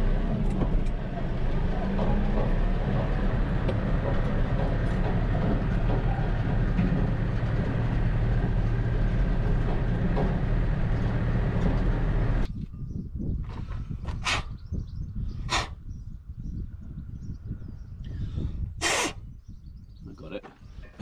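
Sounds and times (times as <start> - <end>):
tractor engine rumbling: 0.0 - 15.7, 20.1 - 21.0
quiet outdoor background: 0.0 - 21.0
light knocks and rattles: 1.8 - 12.5.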